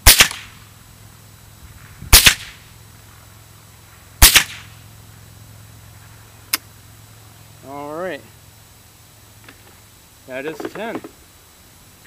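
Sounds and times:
rifle shots: 0.0s - 0.5s, 2.1s - 2.6s, 4.2s - 4.7s.

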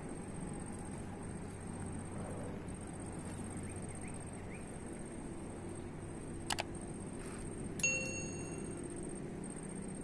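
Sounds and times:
outdoor background hiss: 0.0s - 10.0s
bell-like notification ding: 7.8s - 8.8s.

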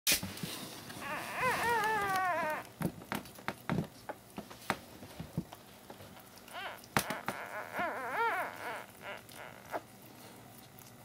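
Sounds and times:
puppy squealing: 1.0s - 2.7s, 6.5s - 9.9s.

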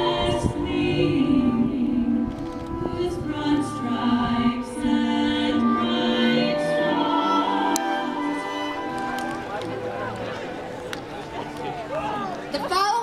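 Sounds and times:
choir singing slow song: 0.0s - 9.1s.

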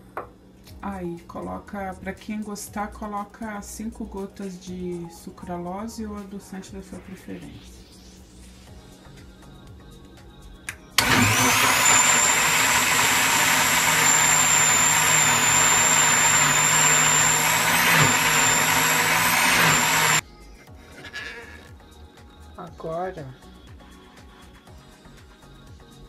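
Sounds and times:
blender whining: 11.0s - 20.2s.

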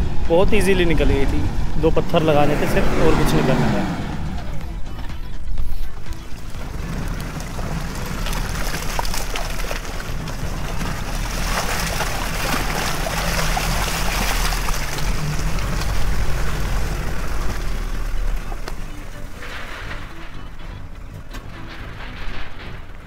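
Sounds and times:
vehicle engine pulling slowly: 0.0s - 23.0s
tyres squelching in mud: 6.0s - 21.0s.

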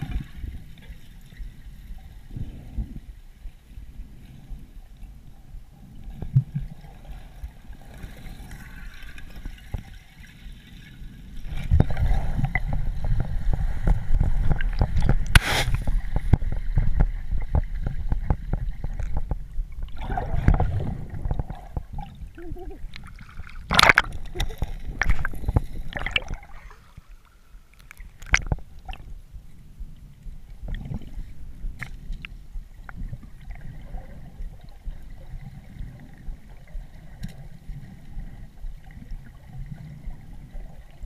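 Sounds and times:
underwater water rumble and gurgle: 0.0s - 41.0s
water splash: 13.8s - 17.0s, 23.0s - 26.7s.

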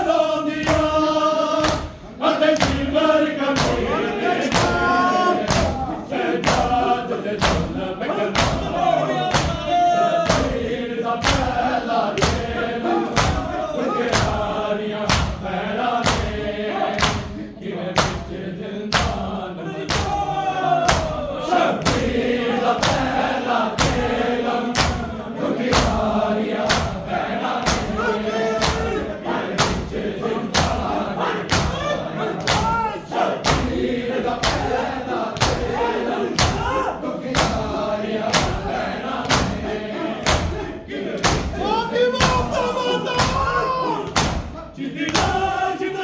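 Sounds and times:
people chanting together: 0.0s - 46.0s
hands slapping chests: 0.6s - 1.9s, 2.5s - 2.9s, 3.5s - 5.8s, 6.4s - 6.8s, 7.4s - 9.6s, 10.2s - 10.6s, 11.2s - 11.6s, 12.2s - 14.5s, 15.1s - 15.4s, 16.0s - 17.4s, 18.0s - 18.3s, 18.9s - 19.3s, 19.9s - 20.2s, 20.8s - 21.2s, 21.8s - 22.2s, 22.8s - 23.2s, 23.8s - 25.1s, 25.7s - 30.9s, 31.5s - 34.8s, 35.4s - 40.6s, 41.2s - 41.6s, 43.2s - 45.5s.

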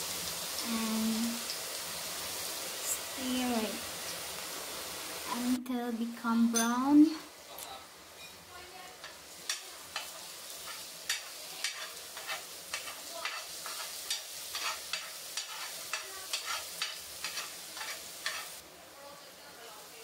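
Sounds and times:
garlic sizzling in hot oil: 0.0s - 20.0s
metal spoon scraping a pan: 9.0s - 18.6s.

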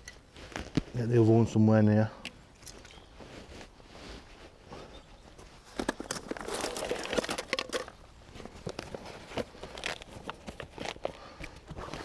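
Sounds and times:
rustling of tackle bag: 5.4s - 12.0s.

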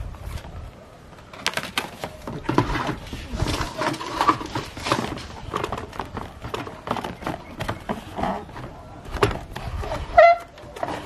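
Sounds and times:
plastic clicks and rustling: 1.2s - 9.8s.

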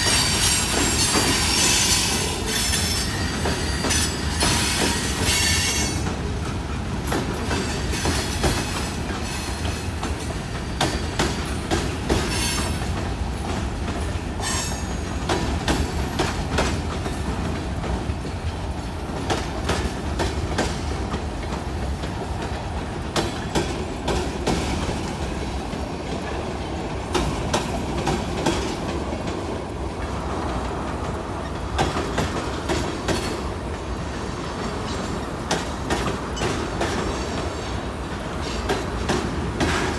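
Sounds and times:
wheel squeals: 0.0s - 6.1s, 12.2s - 12.9s
freight train rumbling past: 0.0s - 39.9s
wheels clacking over rail joints: 0.0s - 39.9s.

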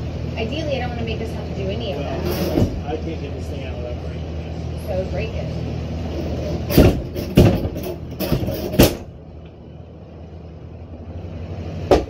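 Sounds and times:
wooden drawer knocking and banging: 6.7s - 9.0s.

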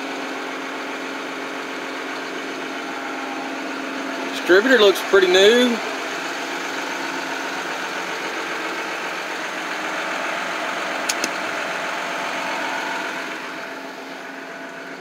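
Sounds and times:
engine idling: 0.0s - 15.0s
short sharp clicks: 11.1s - 11.5s.

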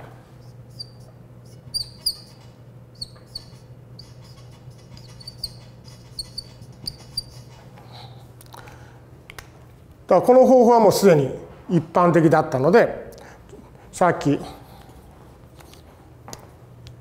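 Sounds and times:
steady low hum: 0.0s - 17.0s
marker squeaking on whiteboard: 0.4s - 7.8s.

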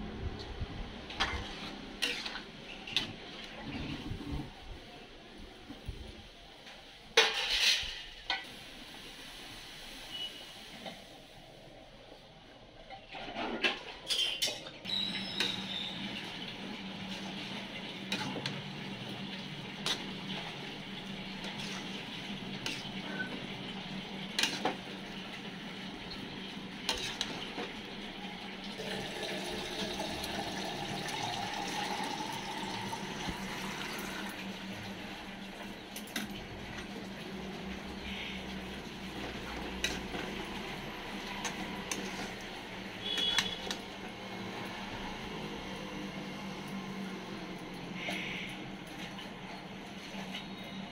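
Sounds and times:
spatula scraping metal pan: 1.2s - 3.1s, 21.3s - 23.5s, 24.4s - 24.8s, 26.9s - 27.4s, 43.0s - 43.7s.

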